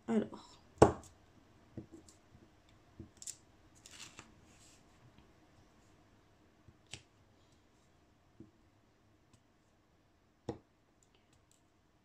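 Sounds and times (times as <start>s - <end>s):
soft rustle: 3.2s - 6.1s.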